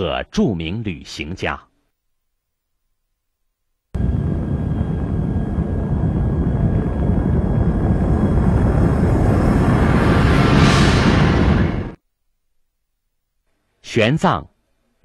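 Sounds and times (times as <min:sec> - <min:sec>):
loud steady rumbling: 0:04.0 - 0:12.0.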